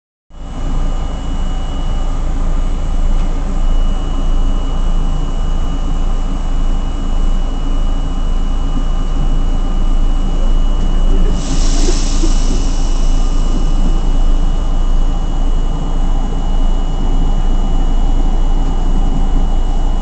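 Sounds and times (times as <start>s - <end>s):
subway car wheels rumbling: 0.4s - 20.0s
thin high whine: 9.7s - 20.0s.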